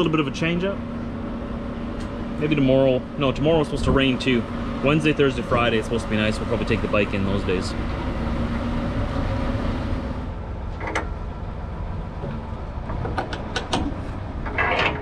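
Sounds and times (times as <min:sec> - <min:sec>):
truck diesel engine idling: 0:00.0 - 0:14.4
clicks and clanks of couplings: 0:10.7 - 0:11.2, 0:12.2 - 0:15.0.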